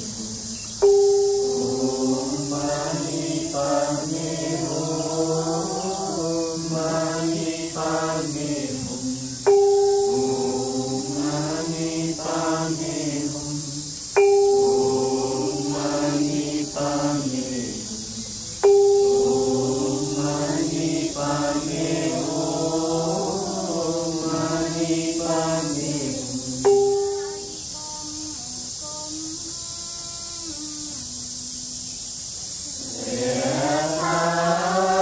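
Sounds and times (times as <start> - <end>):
voices chanting in unison: 0.0 - 29.0, 31.7 - 35.0
bell-like tone struck: 0.8 - 2.6, 9.5 - 11.4, 14.2 - 16.8, 18.6 - 20.6.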